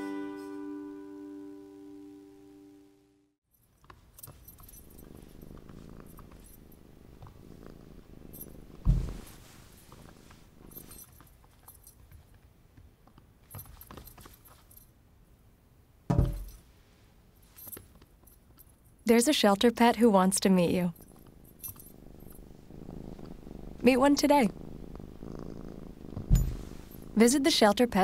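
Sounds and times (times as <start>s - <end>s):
collar tag jingling: 3.5s - 12.4s, 20.4s - 24.4s
cat purring: 4.3s - 11.1s, 20.5s - 28.0s.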